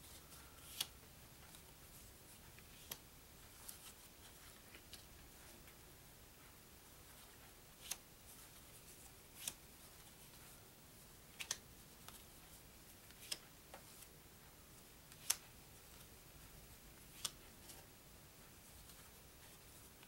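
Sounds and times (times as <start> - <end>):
faint room hiss: 0.0 - 20.0
paper card snapping: 0.6 - 0.9.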